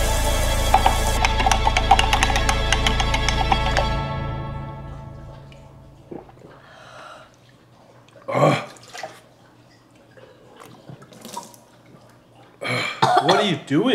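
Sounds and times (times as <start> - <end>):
people gulping and swallowing: 5.4 - 13.3.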